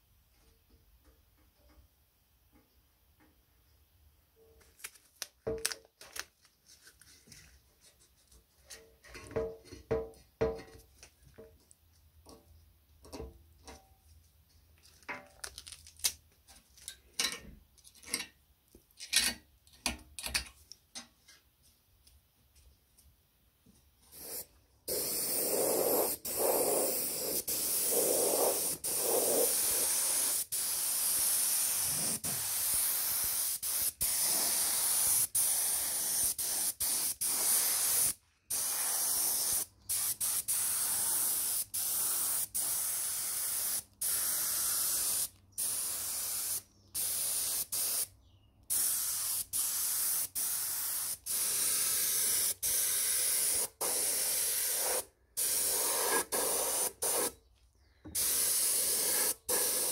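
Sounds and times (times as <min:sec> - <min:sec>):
paint spray gun hissing: 0:24.2 - 0:48.1, 0:48.7 - 0:57.3, 0:58.2 - 0:59.9.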